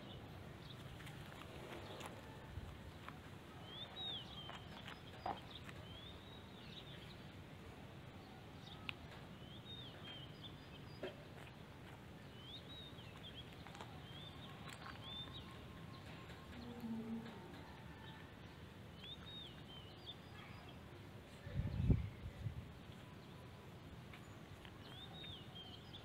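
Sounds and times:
low steady background noise: 0:00.0 - 0:26.0
small bird chirping: 0:08.7 - 0:17.4, 0:18.9 - 0:20.8, 0:24.2 - 0:26.0.

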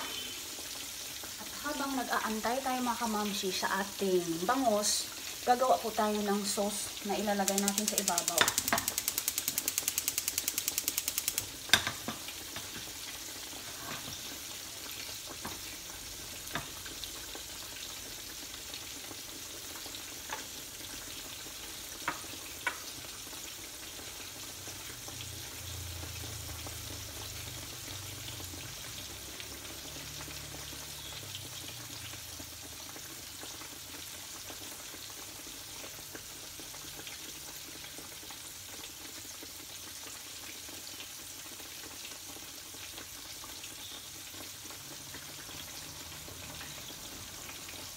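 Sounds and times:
fish sizzling in oil: 0:00.0 - 0:47.9
fast even clicking: 0:07.3 - 0:11.6.

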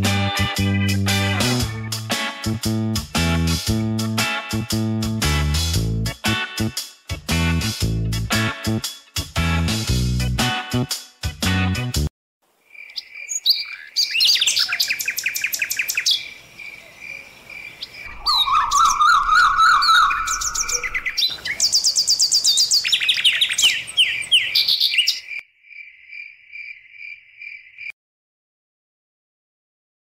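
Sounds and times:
birds chirping and singing: 0:12.8 - 0:25.4.

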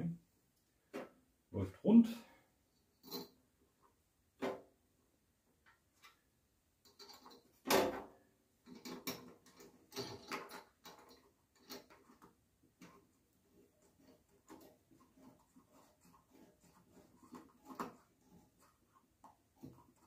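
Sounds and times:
wire spool clicking and knocking: 0:08.6 - 0:13.1, 0:13.8 - 0:20.0.

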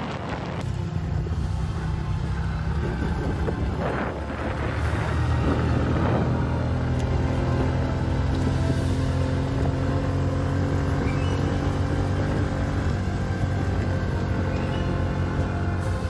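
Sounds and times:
motorbike engine droning: 0:00.0 - 0:16.0.

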